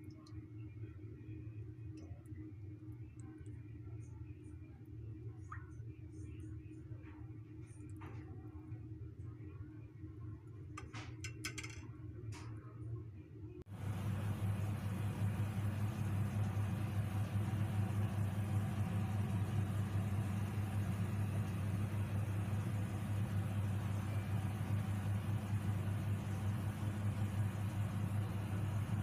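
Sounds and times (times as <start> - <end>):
low motor hum: 13.7 - 29.0.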